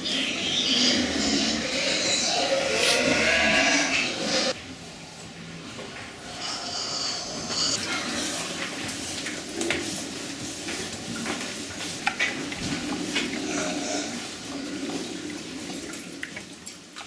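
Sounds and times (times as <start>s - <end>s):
pigs rustling and snuffling: 5.6s - 17.0s.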